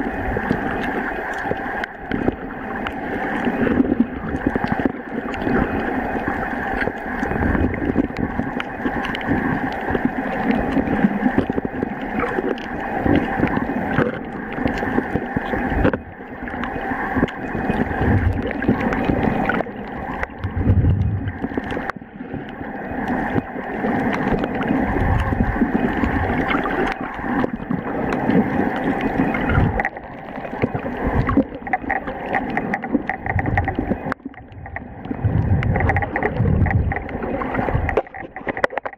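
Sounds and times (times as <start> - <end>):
muffled underwater water noise: 0.0 - 38.9
low underwater thumps: 20.3 - 21.5, 33.0 - 38.9.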